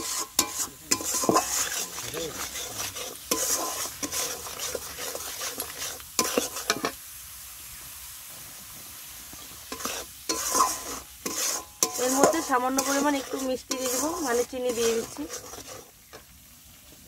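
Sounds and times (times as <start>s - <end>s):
metal spatula scraping a pan: 0.0s - 7.0s, 9.6s - 16.2s
spices sizzling in oil: 0.0s - 17.0s.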